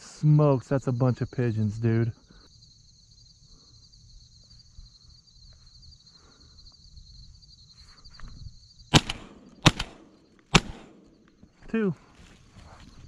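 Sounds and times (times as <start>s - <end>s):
insects trilling: 0.0s - 13.0s
loud shotgun shot: 8.9s - 11.2s.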